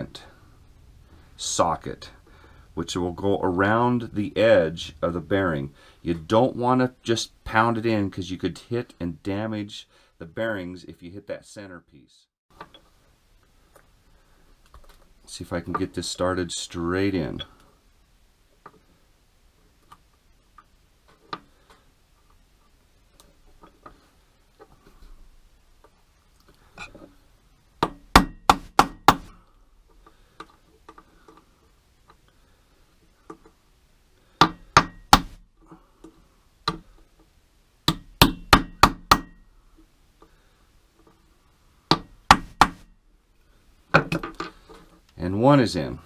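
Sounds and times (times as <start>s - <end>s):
faint clicks of parts handled: 12.6s - 14.0s, 14.6s - 15.9s, 29.8s - 32.4s, 33.0s - 33.6s.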